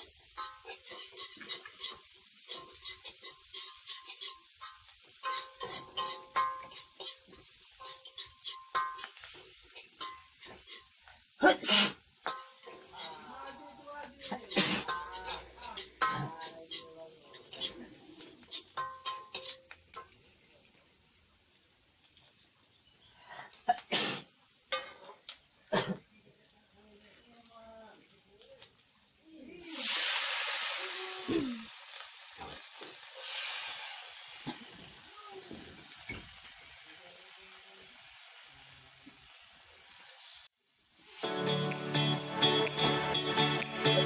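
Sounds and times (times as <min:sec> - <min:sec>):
spatula scraping a wok: 0:00.0 - 0:19.8, 0:24.7 - 0:25.3, 0:31.7 - 0:35.0
light sizzle: 0:00.0 - 0:44.0
person sneezing: 0:11.4 - 0:12.0, 0:14.5 - 0:14.9, 0:23.9 - 0:24.2, 0:31.3 - 0:31.7.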